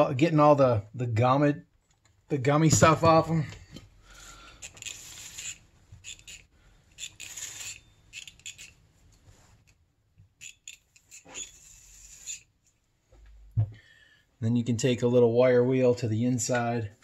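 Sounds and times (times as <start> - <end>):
metal parts scraping and clinking: 4.6 - 8.8, 10.4 - 12.8.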